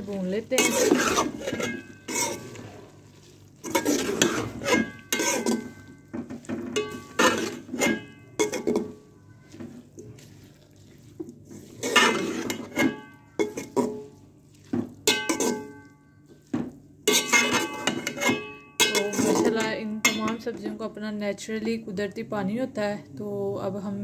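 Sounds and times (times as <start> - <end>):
metal spoon scraping cooking pot: 0.3 - 14.2, 15.0 - 16.0, 17.0 - 20.8.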